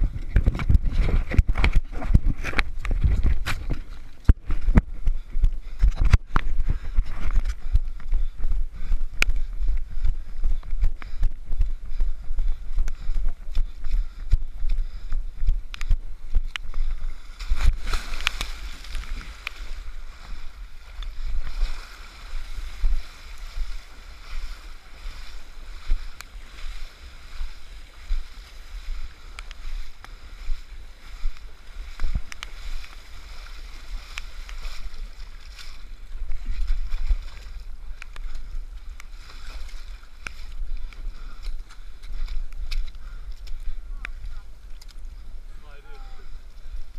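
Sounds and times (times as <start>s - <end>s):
knocks and scraping on mud: 0.0s - 11.3s
running footsteps: 0.0s - 45.3s
wind rumble on microphone: 0.0s - 46.9s
water sloshing and splashing: 16.8s - 28.9s.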